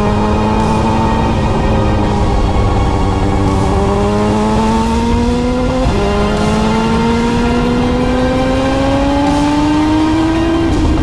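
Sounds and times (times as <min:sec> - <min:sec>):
motorcycle engine accelerating: 0:00.0 - 0:11.0.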